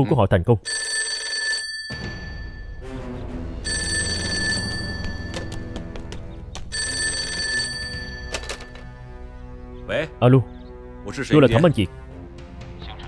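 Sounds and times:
telephone bell ringing: 0.7 - 2.8, 3.6 - 9.0
background music: 1.9 - 13.0.

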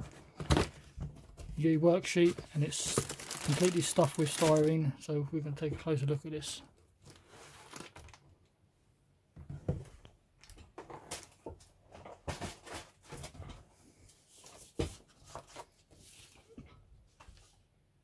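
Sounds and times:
paper sheet rustling: 2.2 - 4.8.

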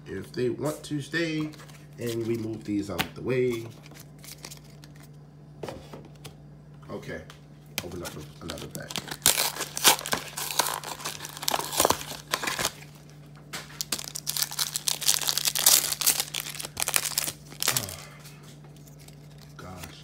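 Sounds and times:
foil wrapper tearing and crinkling: 8.4 - 18.2.

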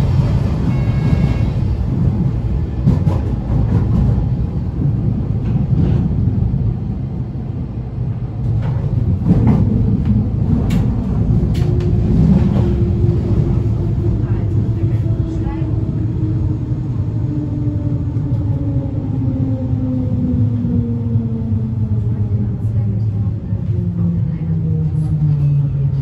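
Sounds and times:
train wheels rumbling on track: 0.0 - 26.0.

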